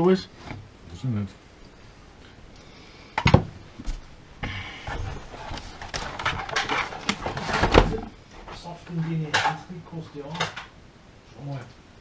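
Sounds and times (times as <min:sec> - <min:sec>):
scraping and rustling: 0:04.8 - 0:09.6.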